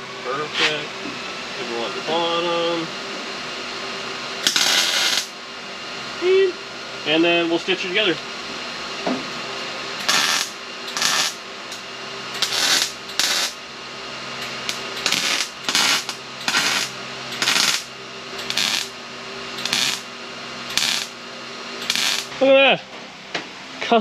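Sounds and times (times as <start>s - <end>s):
electric welder arc bursts: 4.4s - 5.4s, 10.0s - 13.7s, 14.4s - 21.2s, 21.8s - 22.6s.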